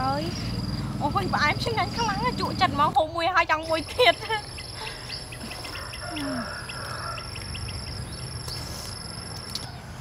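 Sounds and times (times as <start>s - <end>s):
bird chirps: 3.6s - 9.9s.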